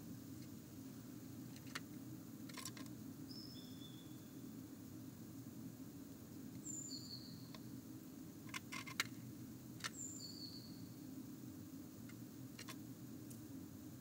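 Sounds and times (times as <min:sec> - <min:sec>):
low electrical hum: 0:00.0 - 0:14.0
bird claws scratching on wood: 0:08.5 - 0:09.1.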